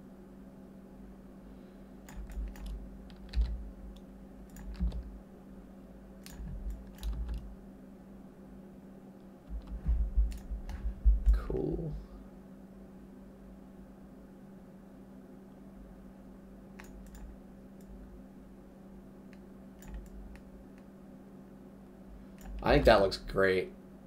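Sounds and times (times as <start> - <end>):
faint steady hum: 0.0 - 24.0
computer keyboard typing: 2.1 - 5.1, 6.2 - 7.5, 9.5 - 11.4, 16.8 - 17.4, 19.8 - 20.4, 22.4 - 22.7
dull thumps: 9.5 - 11.4.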